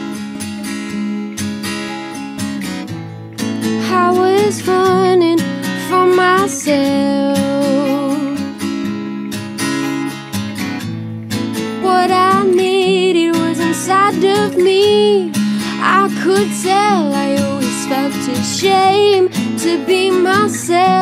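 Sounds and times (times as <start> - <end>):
acoustic guitars strumming: 0.0 - 21.0
woman singing: 3.7 - 8.6, 11.7 - 21.0.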